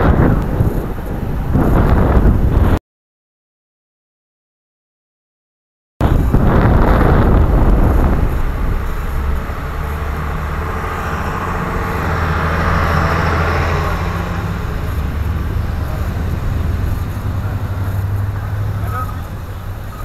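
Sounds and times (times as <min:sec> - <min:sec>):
truck driving past: 0:06.0 - 0:20.0.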